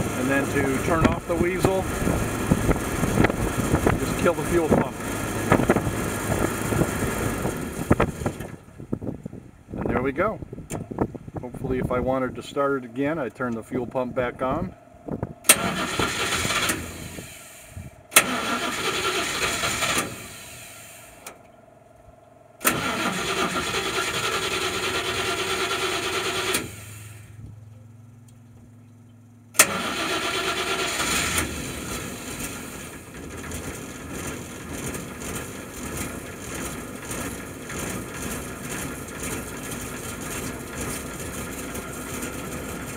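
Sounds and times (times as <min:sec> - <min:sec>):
engine cranking on starter: 0:00.0 - 0:08.6, 0:15.4 - 0:21.4, 0:22.6 - 0:27.4, 0:29.5 - 0:42.9
engine idling: 0:00.0 - 0:42.9.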